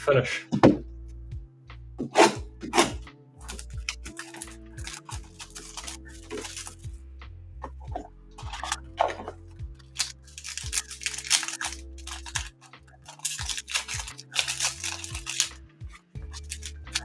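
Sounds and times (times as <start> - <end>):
foil wrapper tearing and crinkling: 3.4 - 6.8, 8.4 - 15.6, 16.2 - 17.0.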